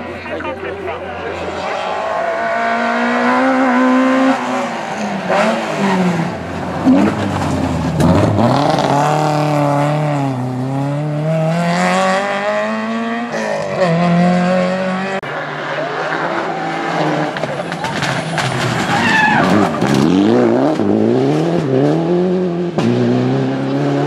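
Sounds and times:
rally car engine revving: 0.0 - 24.0.

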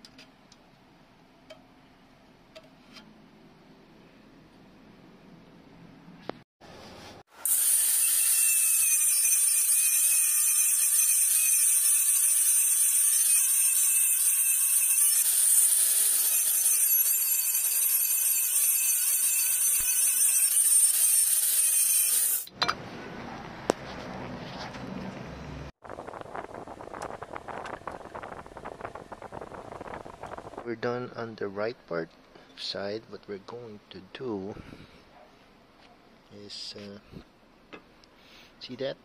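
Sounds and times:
angle grinder cutting metal: 7.4 - 22.5.

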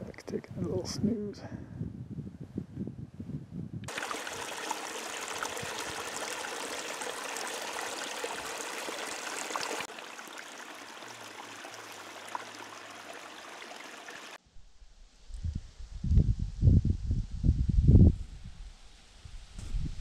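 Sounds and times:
stream water rushing: 3.9 - 14.4.

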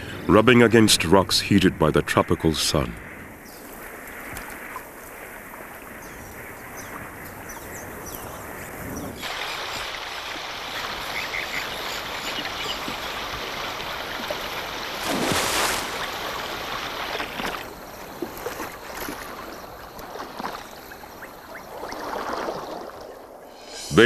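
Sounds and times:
small drips and splashes: 4.0 - 5.8, 9.2 - 23.3
water lapping among rocks: 9.2 - 23.5
water splash: 9.2 - 23.9.

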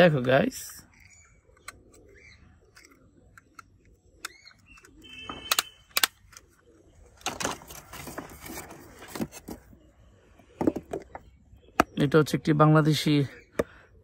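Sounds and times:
plastic toys clicking: 0.2 - 6.5.

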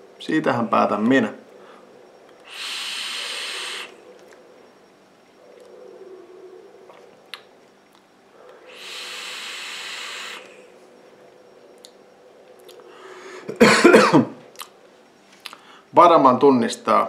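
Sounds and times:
breathy exhale: 1.6 - 4.0, 8.3 - 10.8, 12.8 - 13.6, 15.5 - 15.9
electronic cigarette hissing: 2.4 - 4.0, 8.6 - 10.7.

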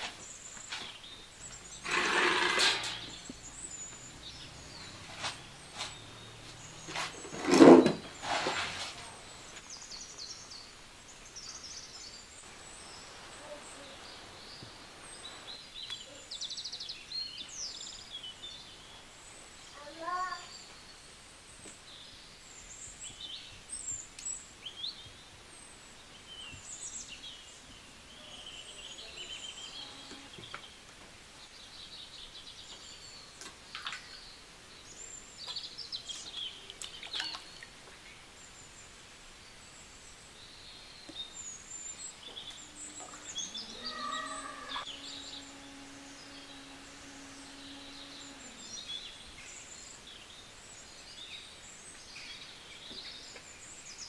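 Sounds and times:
birds chirping and calling: 0.0 - 10.6, 40.5 - 53.4
faint steady hiss: 0.0 - 54.0
low pitched tone: 42.2 - 49.8.

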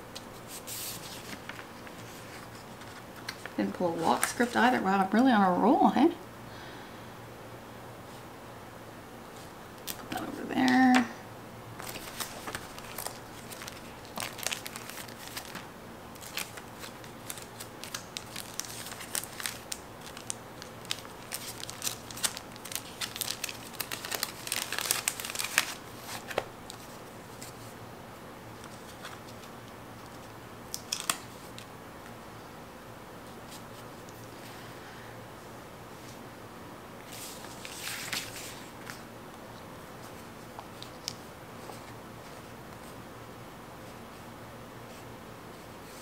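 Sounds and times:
stickers crinkling and crackling: 11.8 - 27.7, 28.6 - 31.7.

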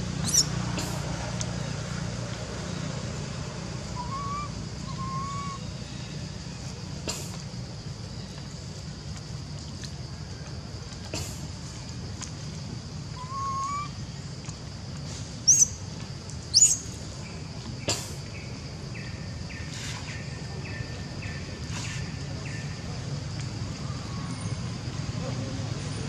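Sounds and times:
high-pitched squeaky calls: 0.2 - 0.5, 15.5 - 15.7.

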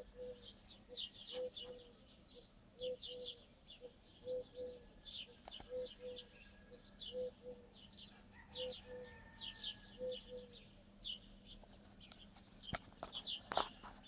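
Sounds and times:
dove cooing: 0.0 - 10.7
small birds chirping: 0.0 - 14.0.

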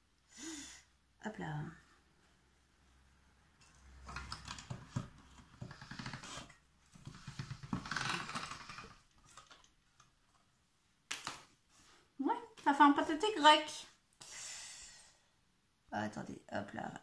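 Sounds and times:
pasta machine clicking and rubbing: 4.1 - 9.6.

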